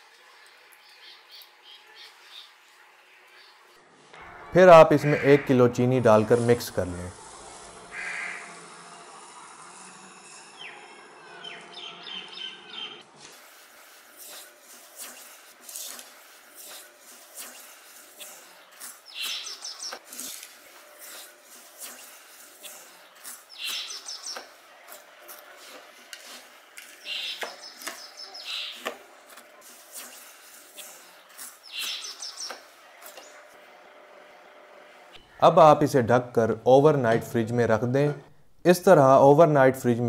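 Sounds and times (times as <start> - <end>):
small bird trilling: 19.1 - 20.0, 23.5 - 24.4, 27.0 - 28.8, 31.6 - 32.5.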